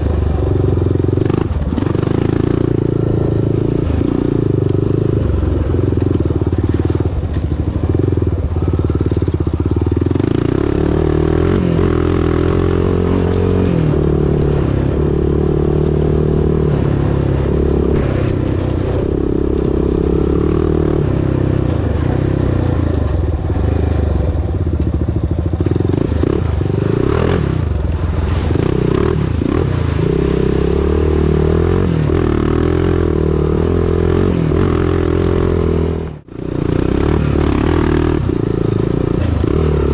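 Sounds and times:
atv engine revving: 0:00.0 - 0:39.9.

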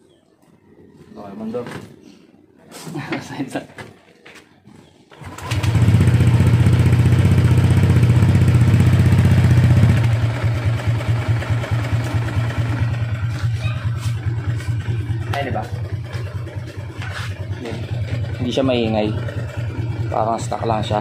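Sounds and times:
scooter engine starting and idling: 0:05.1 - 0:21.0.

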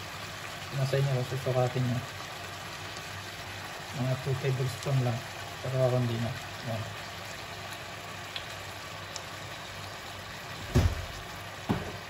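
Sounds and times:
stir-fry sizzling in a wok: 0:00.0 - 0:12.0
dull knocks: 0:10.6 - 0:12.0.

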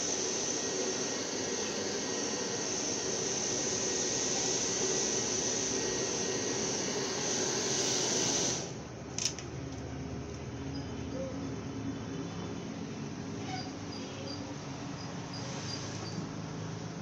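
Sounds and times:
hair dryer blowing: 0:00.0 - 0:08.8.

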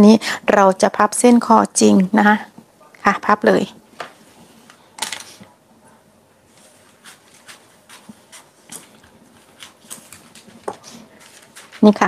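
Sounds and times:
paper rustling and crinkling: 0:06.5 - 0:12.0.

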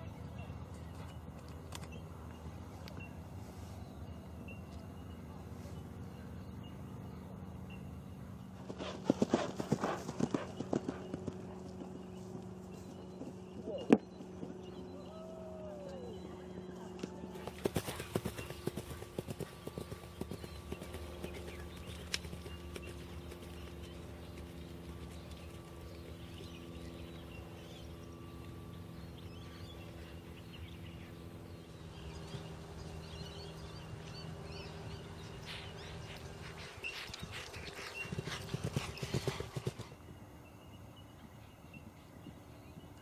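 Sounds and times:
steady low hum: 0:00.0 - 0:43.0
horse galloping on grass: 0:08.6 - 0:14.8, 0:17.3 - 0:27.8, 0:31.9 - 0:40.5.

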